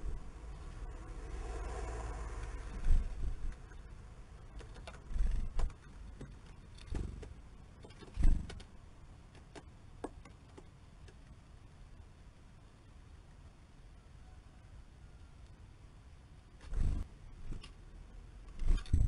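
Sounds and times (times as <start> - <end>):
wing flutters: 1.0 - 8.7, 16.6 - 17.8, 18.5 - 19.0
birds pecking at seeds: 4.4 - 8.7.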